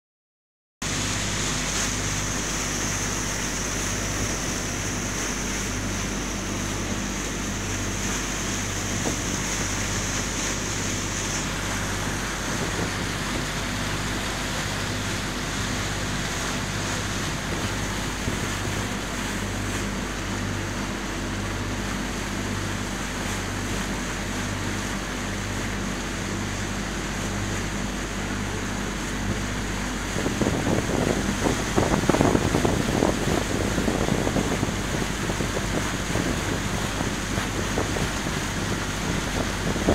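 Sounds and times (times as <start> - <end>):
low pulsing hum: 0.8 - 39.9
wind and water rushing: 0.8 - 39.9
wind buffeting microphone: 2.0 - 19.5, 26.2 - 39.9.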